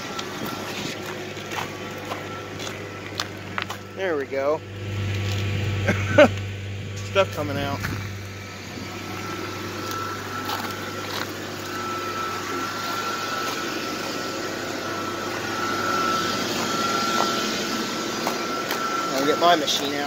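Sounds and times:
bus engine fast idling: 0.0 - 20.0
thin high whine: 0.0 - 20.0.

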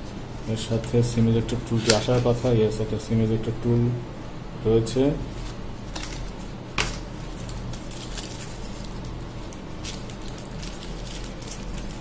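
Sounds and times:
plastic wrapping crinkling: 5.8 - 12.0.

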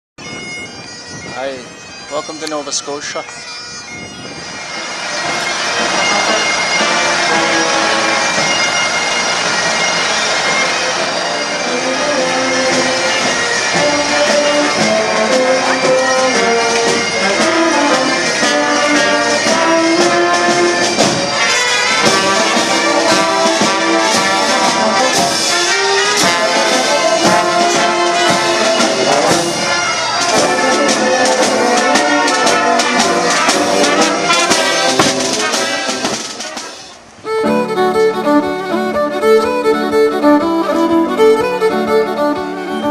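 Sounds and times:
lively brass music: 0.2 - 42.9
music with long held notes: 0.2 - 42.9.

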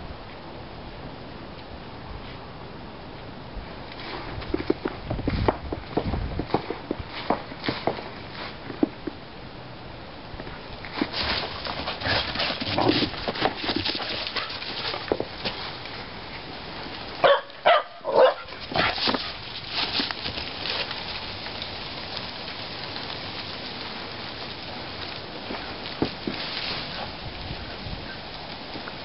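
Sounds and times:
footsteps crunching snow and leaves: 5.2 - 8.7, 18.3 - 29.0
young dog barking: 17.2 - 19.0.

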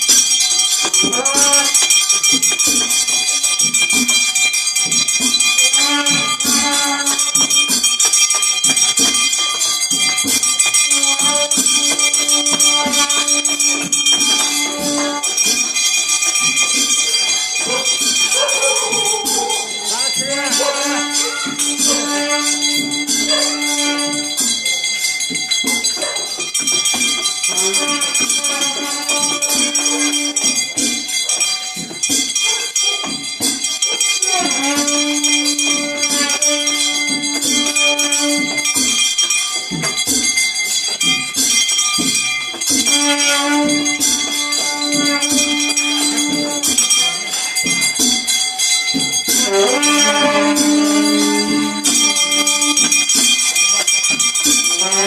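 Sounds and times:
metallic jingling and ringing: 0.0 - 55.0
crowd voices: 10.8 - 24.5.

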